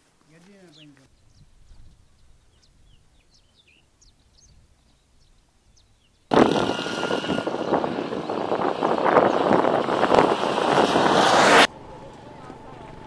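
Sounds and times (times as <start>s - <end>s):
loud steady rushing noise: 6.3s - 12.0s.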